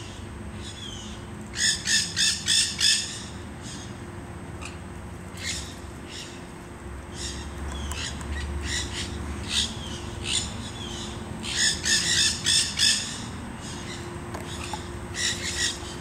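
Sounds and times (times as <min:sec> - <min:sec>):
parakeets squawking: 0:00.7 - 0:04.0, 0:07.1 - 0:16.0.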